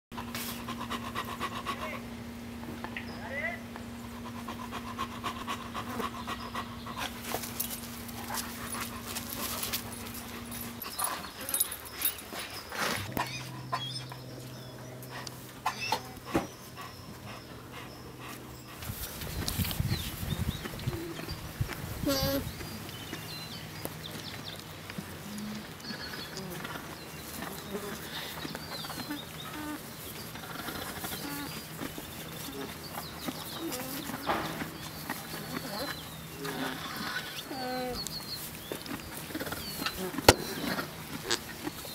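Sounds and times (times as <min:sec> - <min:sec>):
dog panting: 0:00.2 - 0:02.0, 0:04.0 - 0:12.6, 0:15.0 - 0:19.4
small birds chirping: 0:02.8 - 0:41.9.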